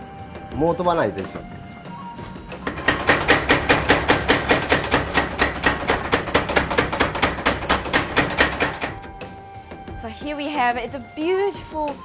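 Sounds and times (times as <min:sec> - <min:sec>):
power hammer striking hot steel: 0:02.6 - 0:09.0.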